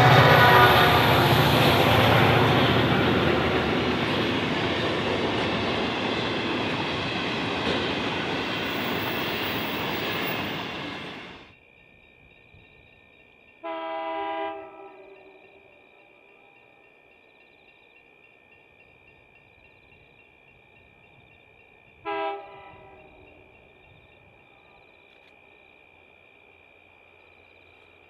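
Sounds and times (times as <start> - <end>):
locomotive horn chord: 0.0 - 4.0, 13.6 - 15.5, 22.0 - 23.3
train wheels on rails: 0.0 - 11.6.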